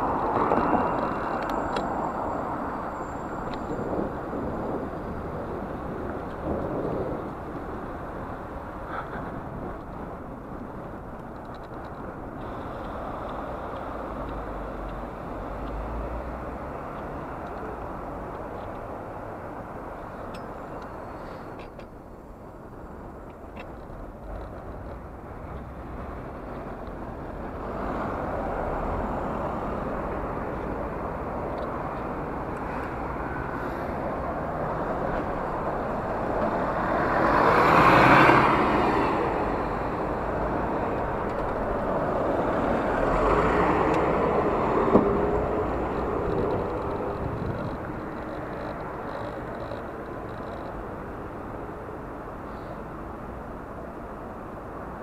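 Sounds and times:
bus passing close: 0:00.0 - 0:10.5, 0:25.2 - 0:55.0
road traffic: 0:00.0 - 0:55.0
wind noise: 0:00.0 - 0:55.0.

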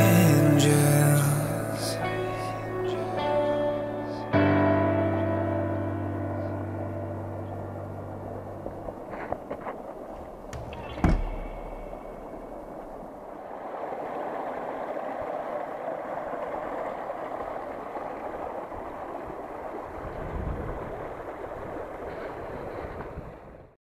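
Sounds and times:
stream rushing over stones: 0:07.8 - 0:23.2.

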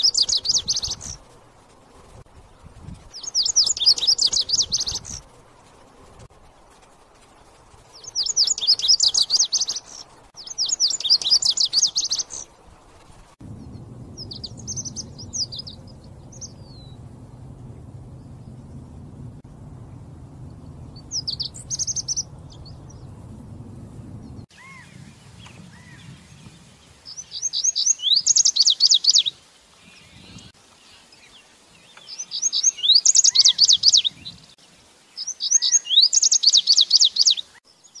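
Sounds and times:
bird singing: 0:00.0 - 0:01.2, 0:03.1 - 0:05.2, 0:07.9 - 0:12.5, 0:13.4 - 0:29.3, 0:29.9 - 0:34.5, 0:35.2 - 0:38.0
low rumble: 0:13.2 - 0:26.4.

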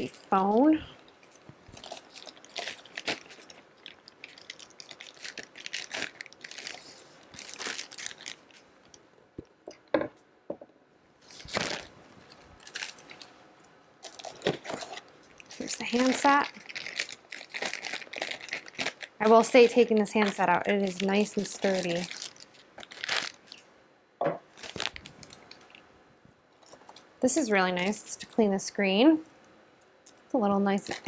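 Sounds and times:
plastic bag crinkling: 0:00.4 - 0:09.0, 0:11.2 - 0:13.4, 0:14.0 - 0:23.6, 0:24.4 - 0:25.9, 0:30.8 - 0:31.0.

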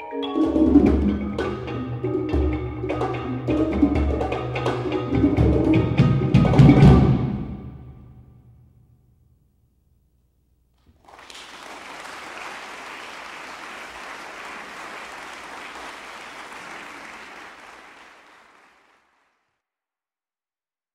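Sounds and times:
low percussion notes: 0:00.3 - 0:08.2
audience applause: 0:10.9 - 0:19.5.

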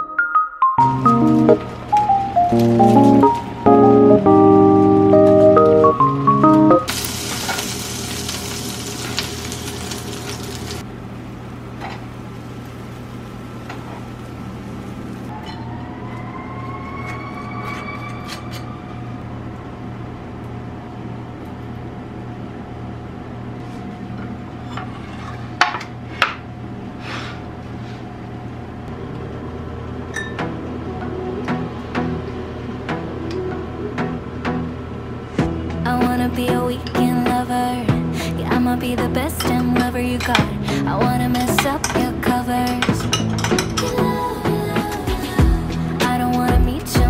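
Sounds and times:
butter sizzling in a frying pan: 0:06.9 - 0:10.8
faint rising whine: 0:15.3 - 0:20.2
dishes clinking: 0:42.6 - 0:44.0.

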